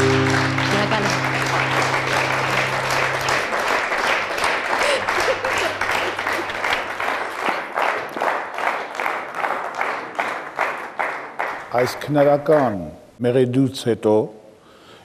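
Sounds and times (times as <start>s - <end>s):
acoustic guitar chord: 0.0s - 6.6s
audience applauding: 0.0s - 12.0s.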